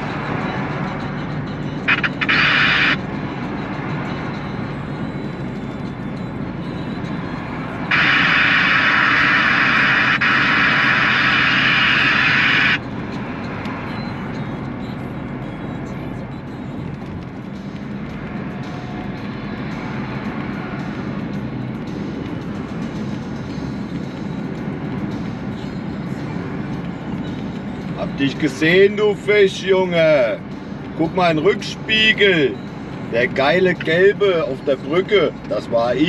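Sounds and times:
diesel truck engine and road noise: 0.0s - 36.0s.

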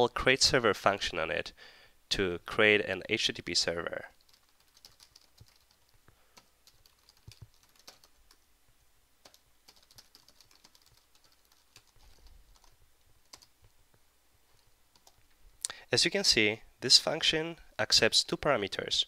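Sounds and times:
typing on computer keyboard: 4.2s - 8.4s, 9.2s - 13.5s, 15.0s - 15.2s.

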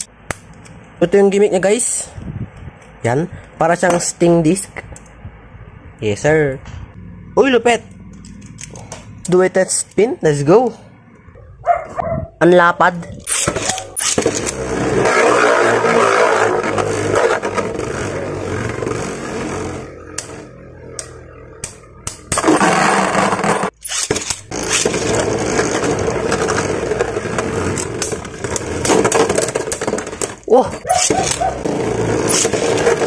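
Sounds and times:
spinning tops whirring and scraping: 13.2s - 33.0s.

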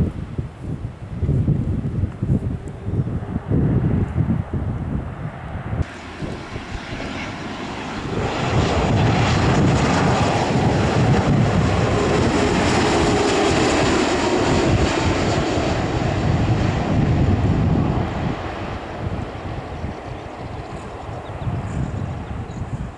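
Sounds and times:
jet engine roar: 2.7s - 22.9s
jet whine falling in pitch: 5.8s - 11.6s.

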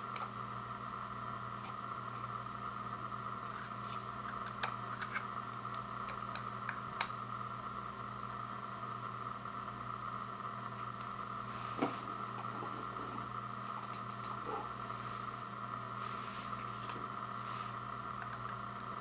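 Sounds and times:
steady background hiss: 9.8s - 19.0s.

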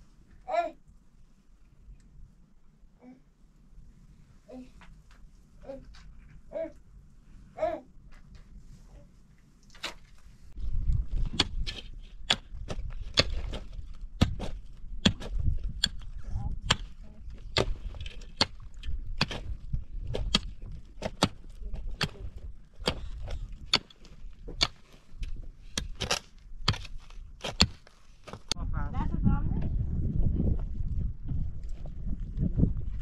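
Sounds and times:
pick and shovel striking stony ground: 9.7s - 28.6s.

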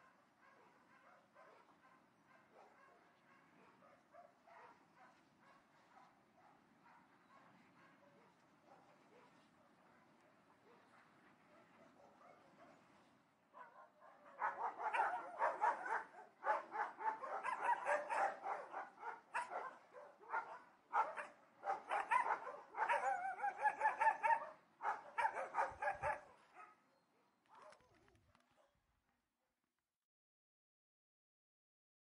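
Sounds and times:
dogs barking: 0.0s - 12.8s, 13.6s - 26.8s.

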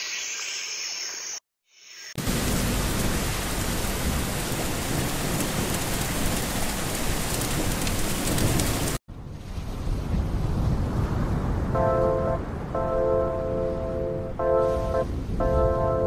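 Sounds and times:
steady rain: 2.2s - 11.4s.

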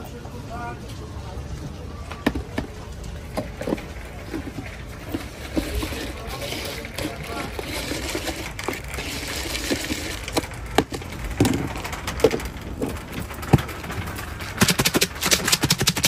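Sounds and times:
puffed rice rustling in plastic tub: 3.8s - 16.0s.

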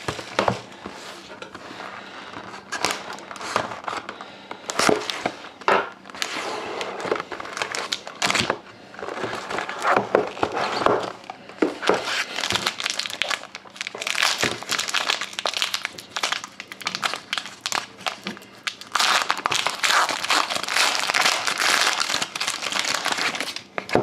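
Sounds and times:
foil pack crinkling and tearing: 6.1s - 23.7s.

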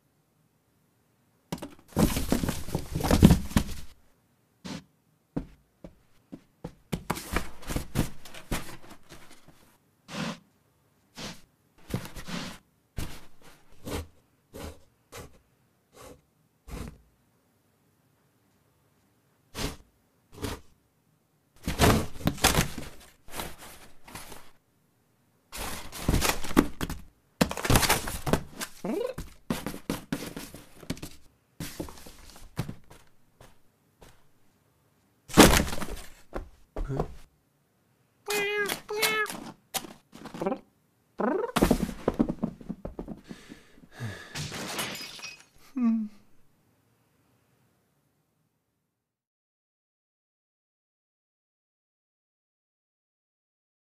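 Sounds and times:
box flaps thunk: 1.6s - 4.0s, 21.6s - 24.4s, 25.6s - 33.0s, 35.3s - 37.2s, 41.6s - 43.4s
cardboard flaps rustling and crinkling: 1.6s - 4.0s, 6.7s - 9.7s, 11.8s - 13.9s, 21.6s - 24.6s, 25.6s - 34.2s, 35.3s - 37.3s, 38.3s - 40.6s, 41.5s - 43.3s
cat scratching cardboard: 4.7s - 4.9s, 6.7s - 10.4s, 11.2s - 15.4s, 19.6s - 19.8s, 25.6s - 33.1s
taps and scrapes on cardboard: 4.7s - 9.2s
cardboard ripping: 25.6s - 31.1s, 35.3s - 36.2s.

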